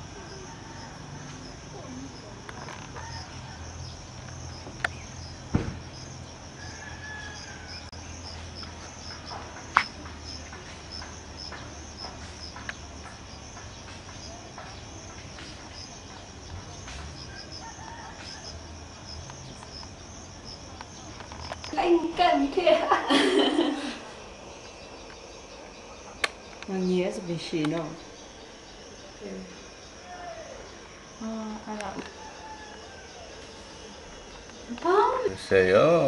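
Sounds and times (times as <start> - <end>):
insects chirring: 0.0 - 36.0
sharp clicks: 26.2 - 26.7.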